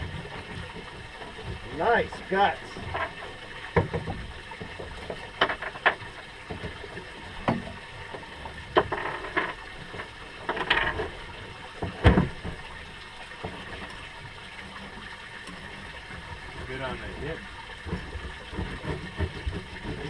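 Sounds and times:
water sloshing: 0.0s - 20.0s.

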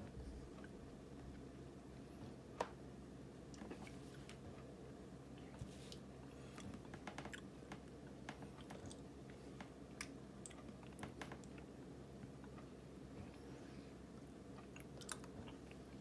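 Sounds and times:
chewing: 14.6s - 16.0s.

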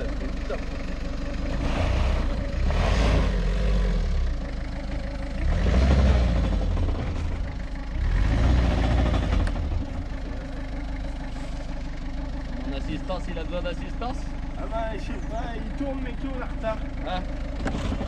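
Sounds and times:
car engine revving hard: 1.4s - 4.4s, 5.3s - 7.4s, 8.0s - 10.0s.

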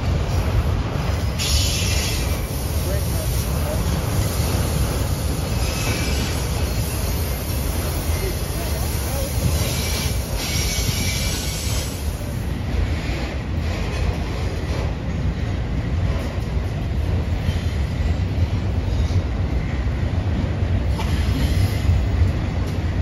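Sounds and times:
freight train rumbling: 0.0s - 23.0s
high wheel squeal: 1.4s - 2.5s, 5.4s - 12.0s.

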